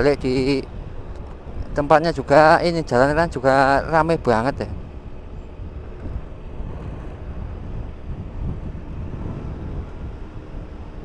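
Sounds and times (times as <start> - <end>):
scooter engine running: 0.0 - 11.0
wind rumble on microphone: 0.0 - 11.0.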